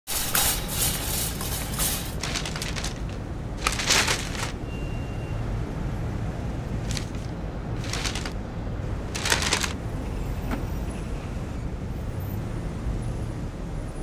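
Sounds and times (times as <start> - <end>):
paper bags rustling: 0.1 - 4.6, 6.8 - 8.4, 9.1 - 9.8.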